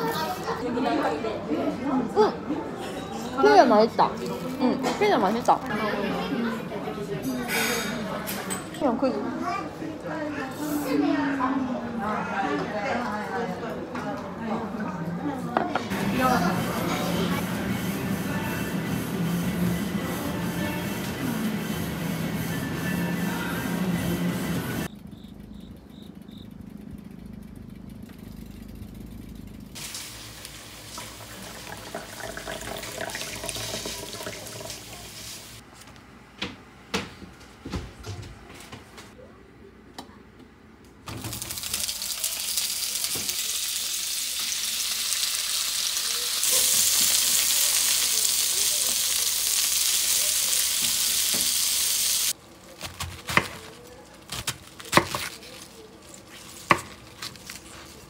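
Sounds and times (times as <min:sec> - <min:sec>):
food sizzling: 0:29.8 - 0:35.6, 0:41.1 - 0:52.4.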